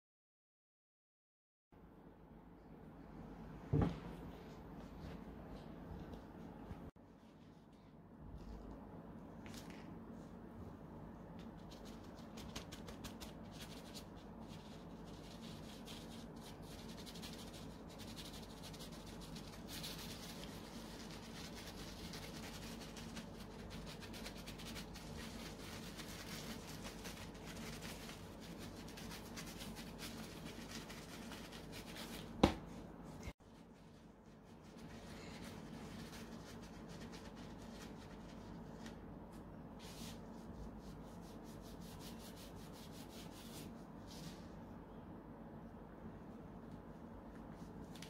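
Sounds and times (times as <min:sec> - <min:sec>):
sugar sifting scratchy rubbing: 0:12.9 - 0:32.3.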